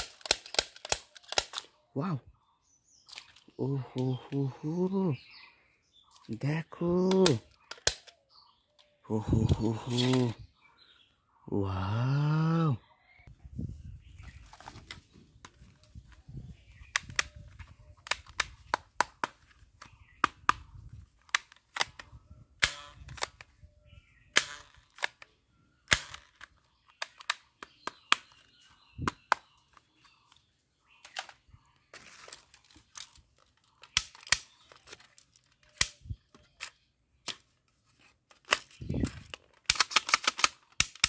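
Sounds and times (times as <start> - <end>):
plastic toy gun clicking: 0.0 - 1.7, 7.0 - 10.3, 16.9 - 20.6, 21.2 - 23.6, 24.4 - 28.5, 31.0 - 31.4, 32.6 - 37.6, 38.3 - 41.0.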